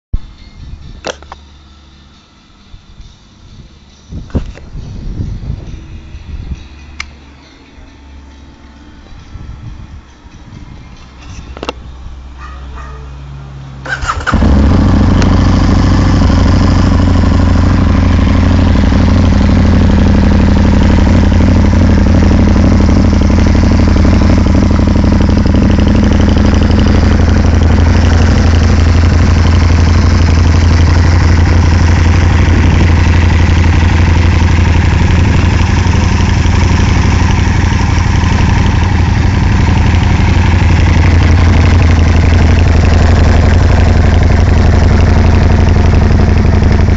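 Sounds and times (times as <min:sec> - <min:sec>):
motorcycle engine idling: 0:13.9 - 0:46.9.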